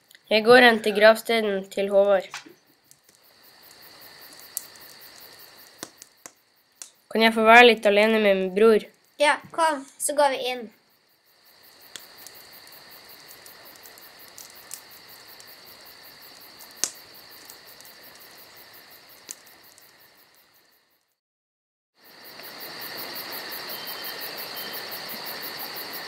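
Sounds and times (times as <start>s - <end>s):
crickets chirring: 0.0s - 21.2s, 22.0s - 26.0s
faint clicks: 2.3s - 7.0s, 16.3s - 18.3s.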